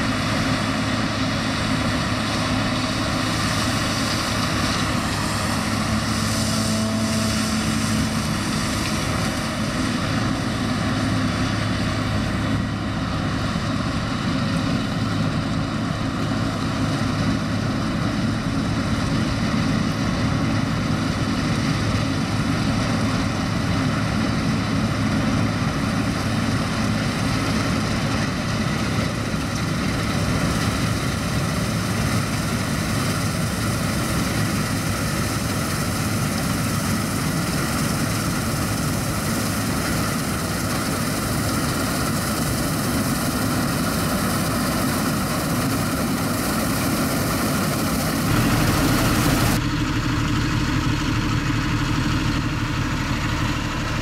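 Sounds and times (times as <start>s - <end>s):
combine harvester droning: 0.0s - 54.0s
tractor engine running: 0.0s - 54.0s.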